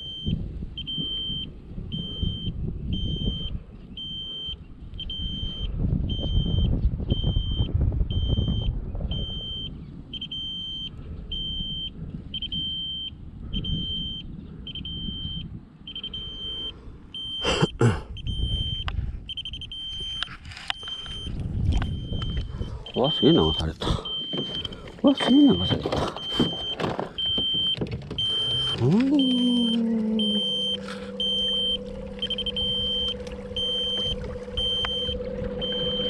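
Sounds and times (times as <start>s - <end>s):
wind buffeting microphone: 0.0s - 17.2s, 18.0s - 29.2s, 29.9s - 36.0s
electronic alarm beeping: 0.0s - 36.0s.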